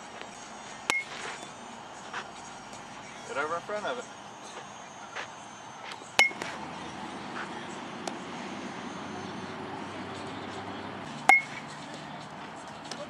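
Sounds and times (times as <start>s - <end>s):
metal bat hitting ball: 0.9s - 1.2s, 6.2s - 8.3s, 11.2s - 11.8s.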